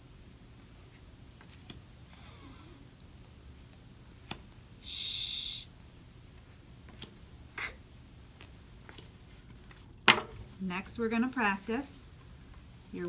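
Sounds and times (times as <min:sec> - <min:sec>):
woman saying speech sounds: 0:10.6 - 0:12.1.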